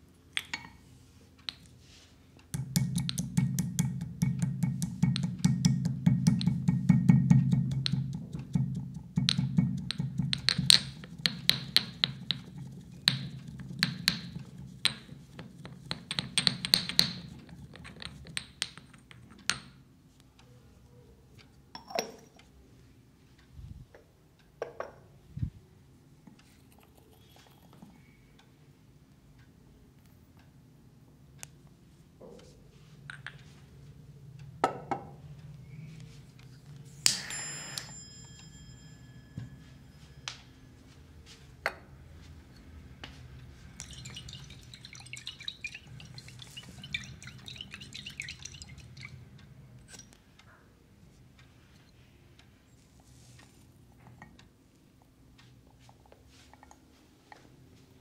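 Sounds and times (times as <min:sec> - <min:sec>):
glass and ceramic clinking: 0:09.3 - 0:19.7, 0:21.8 - 0:22.4, 0:43.8 - 0:49.2
ringing tone: 0:37.2 - 0:40.7
soft crackling rustle: 0:51.0 - 0:54.0.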